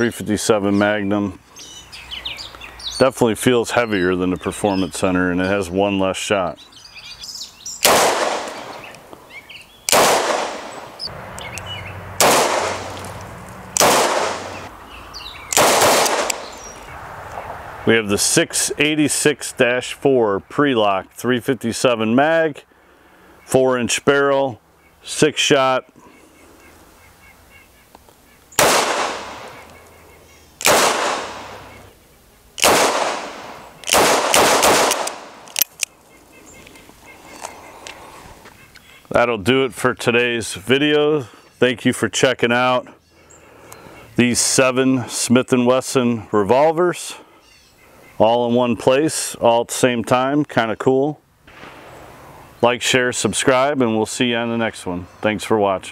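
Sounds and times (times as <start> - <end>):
revolver shots with echo: 7.8 - 8.9, 9.9 - 11.0, 12.2 - 13.0, 13.8 - 14.7, 15.6 - 16.6, 28.6 - 29.6, 30.6 - 31.7, 32.6 - 35.4.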